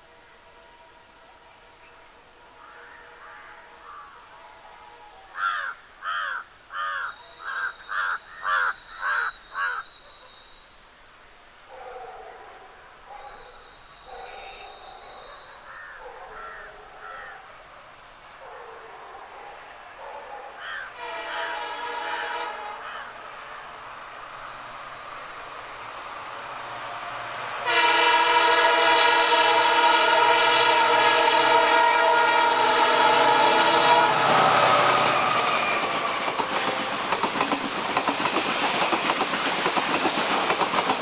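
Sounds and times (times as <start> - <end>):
crow cawing: 5.3 - 9.8, 15.7 - 17.5, 20.6 - 21.5, 22.8 - 23.2
locomotive horn: 20.9 - 23.0, 27.6 - 37.2
train rumble: 21.0 - 41.0.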